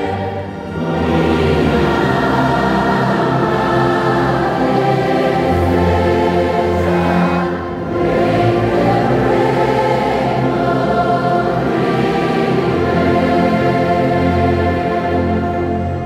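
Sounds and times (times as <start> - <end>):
brass band playing a hymn: 0.0 - 16.0
congregation singing: 0.0 - 16.0.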